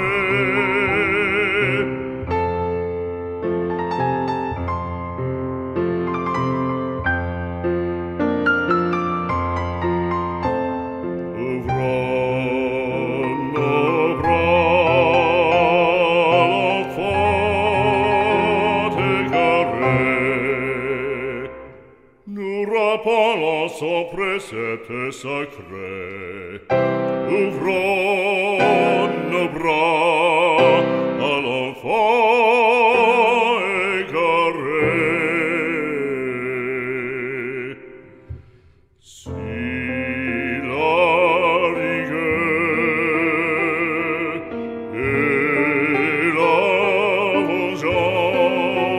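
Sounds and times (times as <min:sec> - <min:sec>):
operatic singing with vibrato: 0:00.0 - 0:02.8, 0:11.2 - 0:48.9
instrumental accompaniment: 0:00.0 - 0:22.2.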